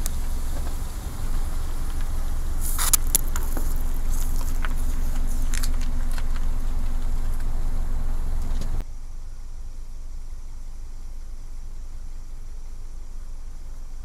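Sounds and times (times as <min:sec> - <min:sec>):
plastic tubes crackling under tyre: 0:00.0 - 0:08.8
car rumbling: 0:00.0 - 0:14.0.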